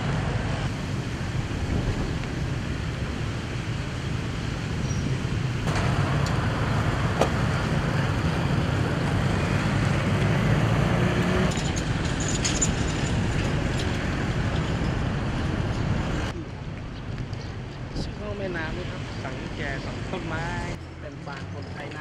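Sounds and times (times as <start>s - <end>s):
street traffic hum: 0.0s - 22.0s.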